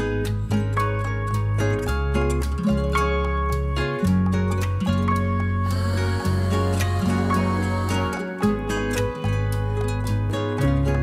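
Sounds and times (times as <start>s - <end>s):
plucked-string instrumental music: 0.0s - 11.0s.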